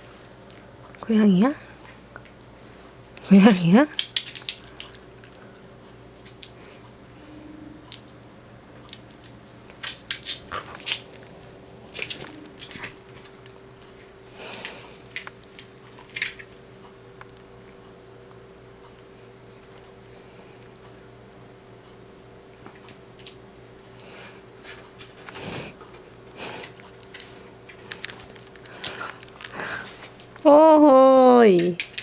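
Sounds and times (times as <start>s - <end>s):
cat chewing string: 10.3s - 21.1s, 26.4s - 30.2s.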